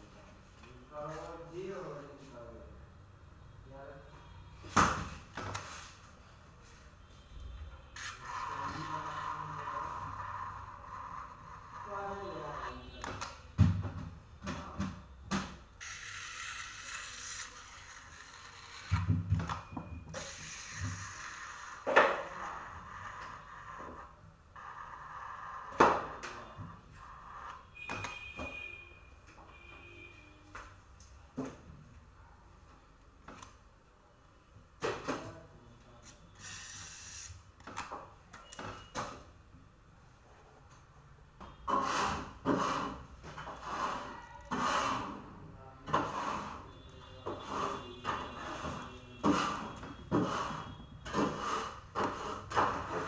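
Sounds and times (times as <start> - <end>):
scraper smoothing cream: 8.0 - 12.8, 15.8 - 19.0
palette knife scraping: 15.8 - 19.0, 43.6 - 45.2, 45.9 - 46.8, 49.2 - 53.0.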